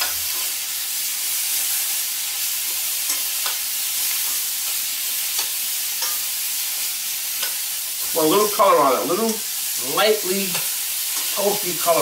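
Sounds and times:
beans sizzling in oil: 0:00.0 - 0:12.0
metal tongs clicking on pan: 0:02.7 - 0:06.3, 0:07.3 - 0:07.7, 0:10.5 - 0:11.4.

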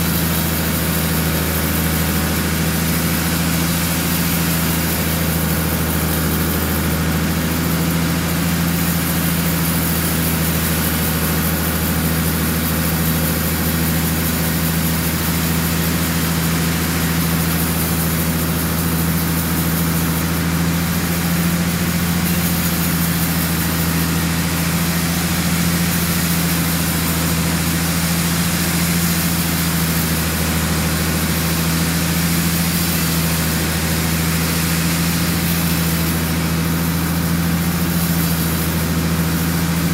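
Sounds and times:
band saw cutting log: 0:00.0 - 0:39.9.

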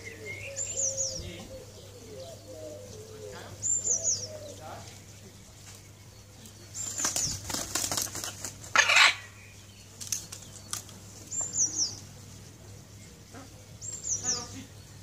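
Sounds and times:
parrot wings flapping: 0:06.8 - 0:08.9.

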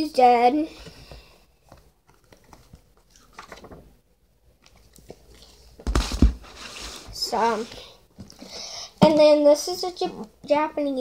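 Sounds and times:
book rustling: 0:01.6 - 0:03.9, 0:04.6 - 0:08.4
book bumping and knocking: 0:05.8 - 0:06.5.

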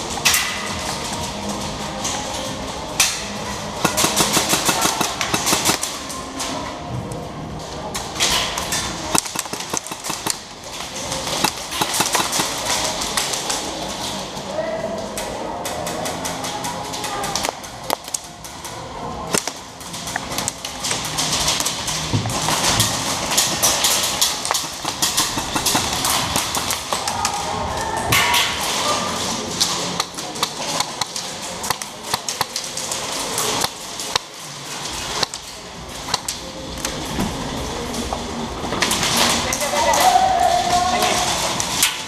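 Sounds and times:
airsoft guns firing: 0:03.8 - 0:06.0, 0:09.1 - 0:10.5, 0:11.2 - 0:13.2, 0:22.5 - 0:27.2
pellets striking plywood walls: 0:03.9 - 0:05.9, 0:09.2 - 0:13.2, 0:20.9 - 0:27.2.

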